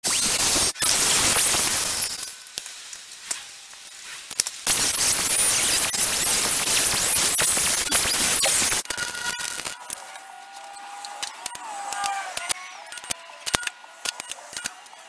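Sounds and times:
angle grinder grinding steel: 3.2s - 15.0s
clicks: 7.4s - 15.0s.

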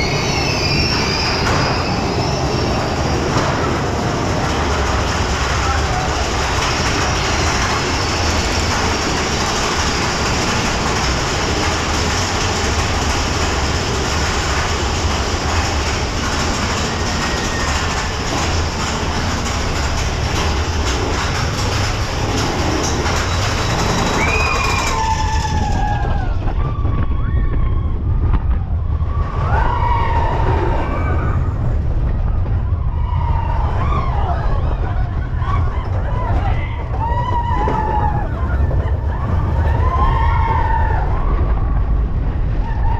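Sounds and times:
high wavering squeals: 0.0s - 3.5s
roller coaster rumbling on track: 0.0s - 42.9s
wind rush: 0.0s - 42.9s.

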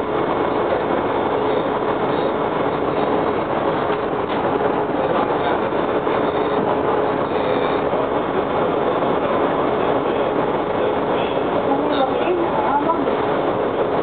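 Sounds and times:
train car running noise: 0.0s - 14.0s.

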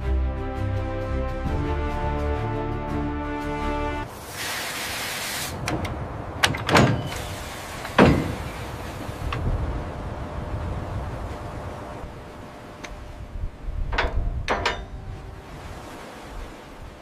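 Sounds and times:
music: 0.0s - 4.1s
short hiss: 4.2s - 5.6s
metallic clanks of tools: 13.9s - 15.1s.

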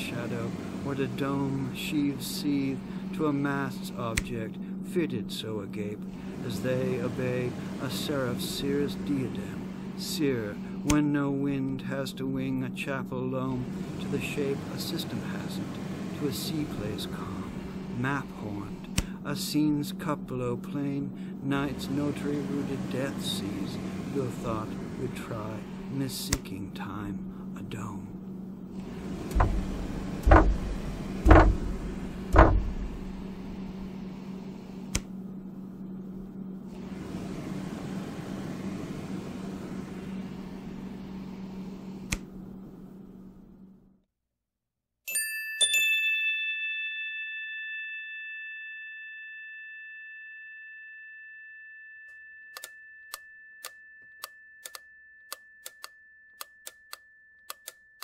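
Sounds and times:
low steady hum: 0.0s - 44.1s
irregular sharp clicks: 18.9s - 19.2s, 34.9s - 35.1s, 42.0s - 42.3s, 52.6s - 57.8s
loud knocks: 29.3s - 33.2s
chime-like ding: 45.1s - 58.0s.

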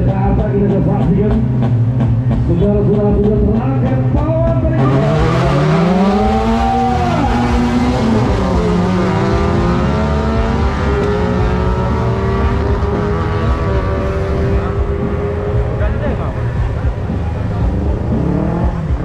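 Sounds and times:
race car engine revving: 0.0s - 19.0s.

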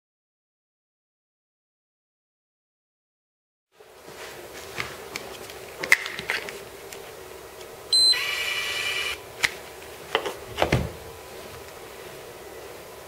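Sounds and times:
high beep and electronic buzz: 7.9s - 9.2s.

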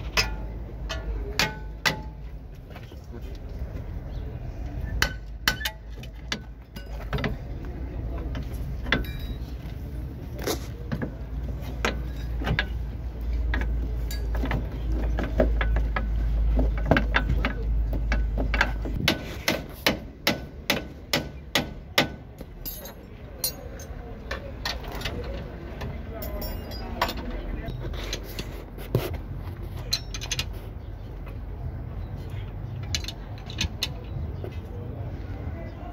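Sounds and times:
metal tools knocking and clinking: 5.0s - 7.5s, 8.3s - 9.7s, 11.8s - 12.9s, 13.5s - 19.0s, 22.4s - 28.5s, 29.8s - 30.6s, 32.8s - 34.2s.

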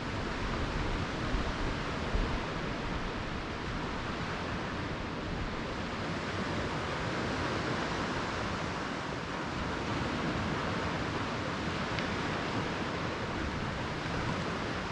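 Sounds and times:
surf washing up a beach: 0.0s - 14.9s.

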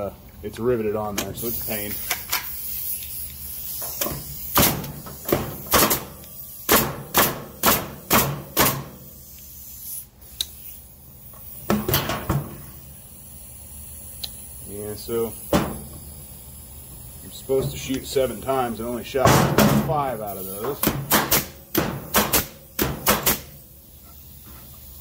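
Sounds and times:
nail gun firing: 4.5s - 9.0s, 20.8s - 23.6s.

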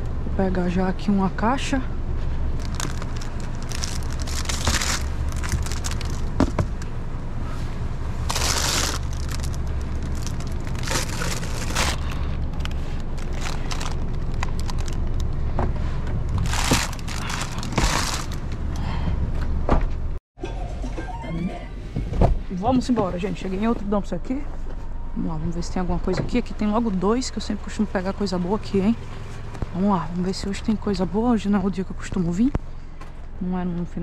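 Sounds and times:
steady low rumble: 0.0s - 20.2s
plastic packaging crinkling: 2.5s - 6.8s, 8.2s - 15.3s, 16.3s - 18.5s.

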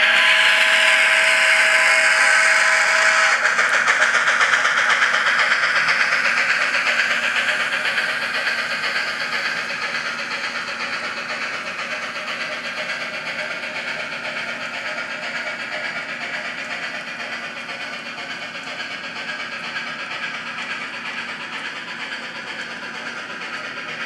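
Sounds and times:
chime steam whistle: 0.0s - 4.1s
steam chuffing and hissing: 0.0s - 24.0s.

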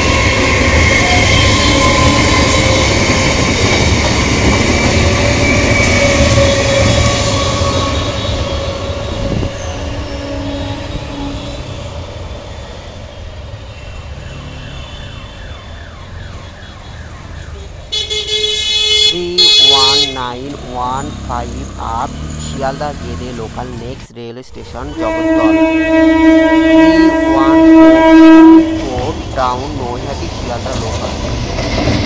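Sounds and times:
train wheels squealing: 0.0s - 4.0s, 4.7s - 11.9s, 12.5s - 15.8s
train rumbling past: 0.0s - 32.0s.

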